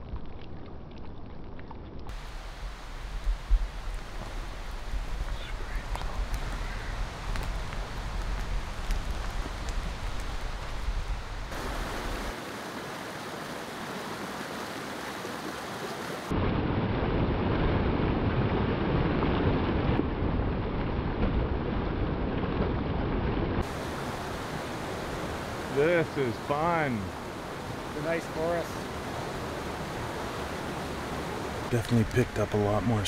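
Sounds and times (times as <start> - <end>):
steady outdoor noise: 0.0 - 17.6, 19.2 - 33.0
whitewater creek rushing: 2.1 - 16.4, 23.6 - 33.0.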